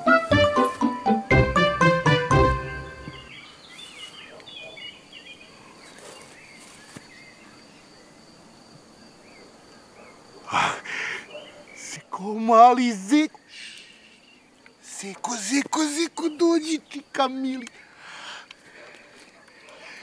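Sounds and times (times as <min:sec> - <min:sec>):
leafy branches rustling: 0:00.0 - 0:01.0, 0:03.3 - 0:04.4, 0:05.5 - 0:07.6
small birds chirping: 0:02.8 - 0:08.2, 0:09.1 - 0:20.0.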